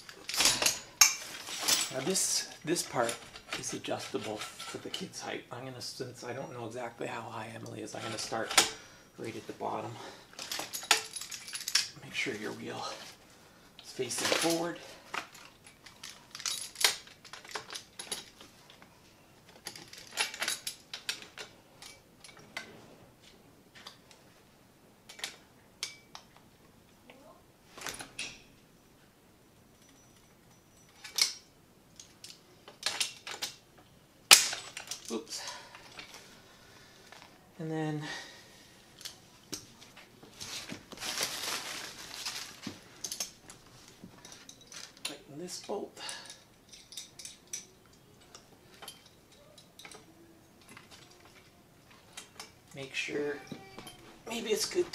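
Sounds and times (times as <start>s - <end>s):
rustling: 0.0s - 5.2s, 38.6s - 45.6s.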